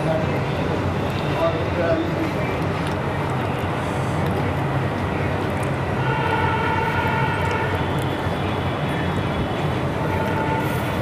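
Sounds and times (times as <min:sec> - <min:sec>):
low urban hum: 0:00.0 - 0:11.0.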